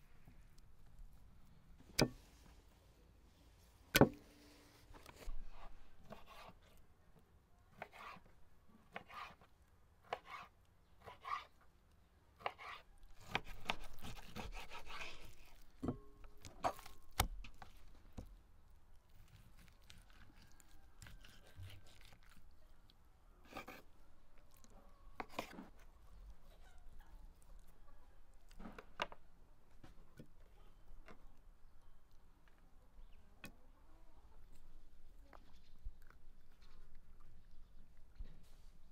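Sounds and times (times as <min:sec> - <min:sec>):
knife cutting liver on board: 0:05.6 - 0:06.6, 0:07.8 - 0:08.3, 0:08.9 - 0:11.5, 0:12.4 - 0:17.7.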